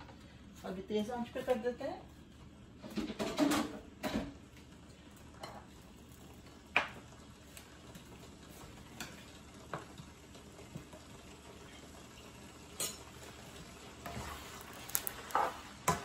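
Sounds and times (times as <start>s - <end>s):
low sizzle of frying: 0.0s - 16.0s.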